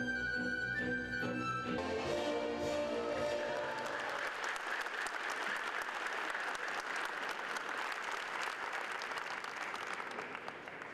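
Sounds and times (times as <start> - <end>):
large audience applauding: 3.3 - 10.9.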